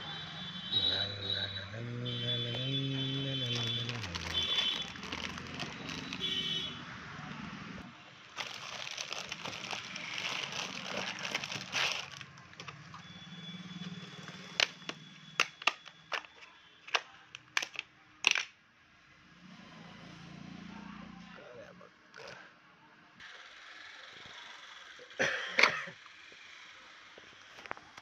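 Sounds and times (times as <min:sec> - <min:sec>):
plastic bag crinkling: 0:03.0 - 0:06.5, 0:08.3 - 0:12.8
plastic parts clicking: 0:14.6 - 0:18.5.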